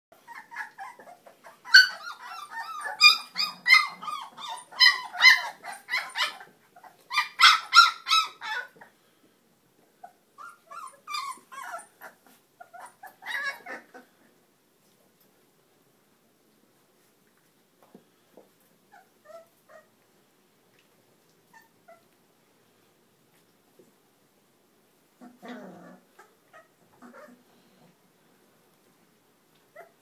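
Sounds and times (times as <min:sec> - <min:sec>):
puppies yelping and whining: 0:00.2 - 0:08.9, 0:10.0 - 0:14.1, 0:18.9 - 0:19.9, 0:25.2 - 0:27.6, 0:29.7 - 0:30.0.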